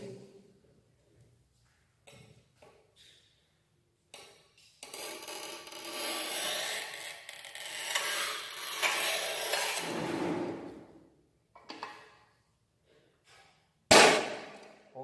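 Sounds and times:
tile cutter wheel scraping tile: 0:04.8 - 0:10.8.

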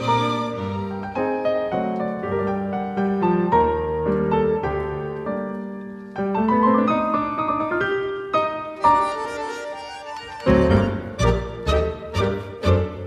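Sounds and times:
piano background music: 0:00.0 - 0:13.0.

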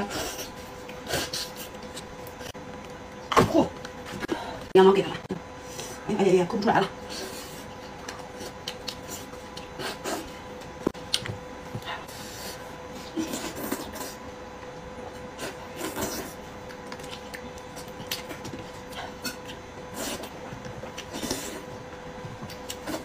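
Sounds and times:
wet smacking and chewing: 0:07.9 - 0:10.3, 0:15.7 - 0:21.6.

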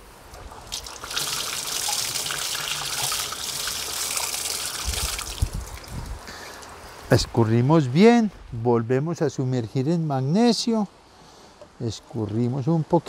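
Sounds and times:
water trickling in sink: 0:00.3 - 0:06.7.

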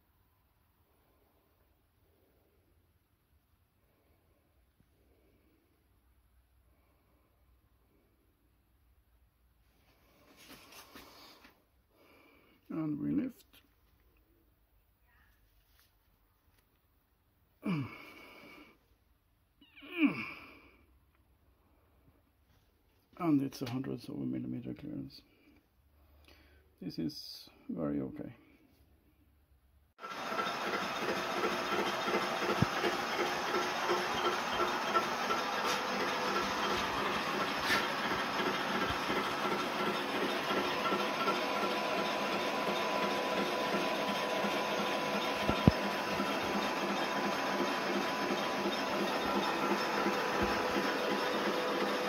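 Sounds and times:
man straining sighs: 0:17.6 - 0:18.8, 0:19.8 - 0:21.0
machinery running with hiss: 0:30.0 - 0:52.0.

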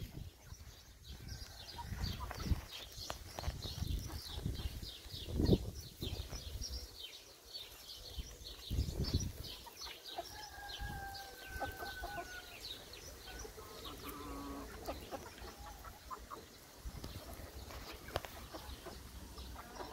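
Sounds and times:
chickens clucking: 0:00.0 - 0:19.9.

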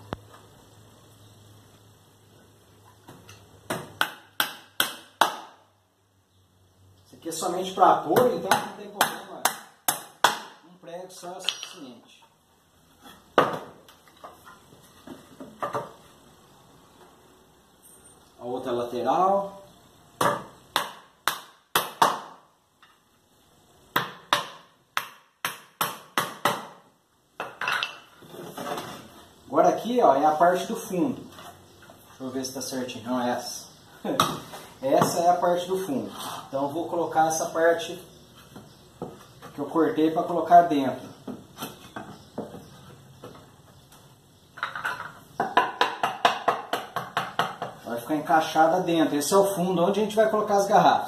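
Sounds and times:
hammer striking wood: 0:03.7 - 0:05.6, 0:08.2 - 0:10.6, 0:20.2 - 0:22.4, 0:23.9 - 0:26.8, 0:45.4 - 0:47.8
wooden boards knocking: 0:44.6 - 0:47.8.

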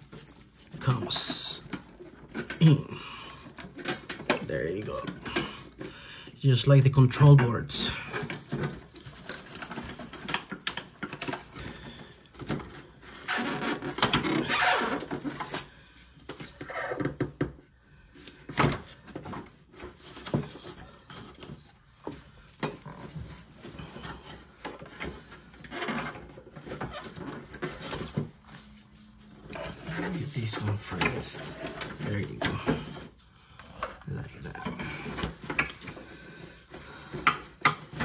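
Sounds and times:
plastic parts clicking and knocking: 0:03.4 - 0:05.9, 0:07.4 - 0:15.6, 0:30.7 - 0:38.0
plastic scraping and rubbing: 0:08.0 - 0:17.6, 0:18.4 - 0:38.0.

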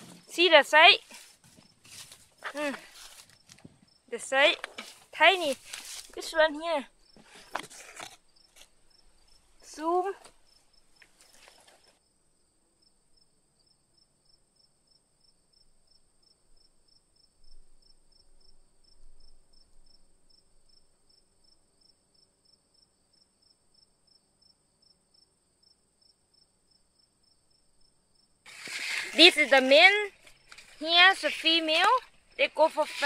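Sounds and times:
insect chirping: 0:00.0 - 0:33.0
brief rustle: 0:04.5 - 0:06.2, 0:07.2 - 0:08.7, 0:11.0 - 0:12.0, 0:28.5 - 0:33.0.

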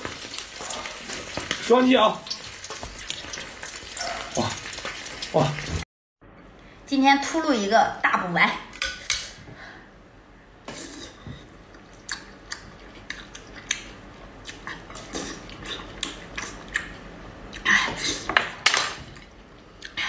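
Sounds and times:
person chewing with mouth clicks: 0:11.7 - 0:17.7.

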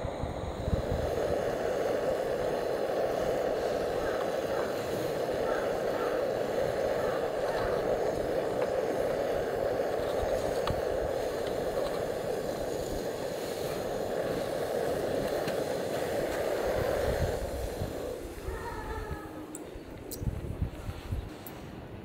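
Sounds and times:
gas stove burner running: 0:00.0 - 0:22.0.

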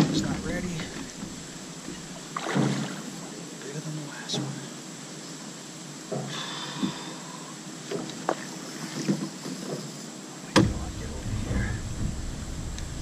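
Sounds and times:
knocks on boat: 0:00.0 - 0:03.0, 0:07.9 - 0:09.9, 0:10.5 - 0:13.0
wind and water hiss: 0:00.0 - 0:13.0
fish splashing at surface: 0:02.4 - 0:03.1.

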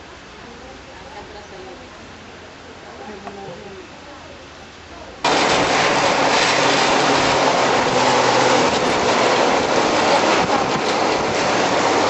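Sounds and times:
rushing river water: 0:05.2 - 0:12.0.

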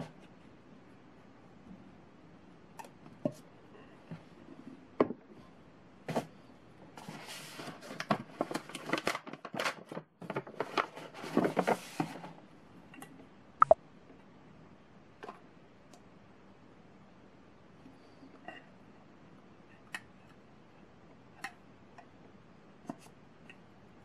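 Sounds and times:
paper bag rustling and crinkling: 0:07.0 - 0:12.4.

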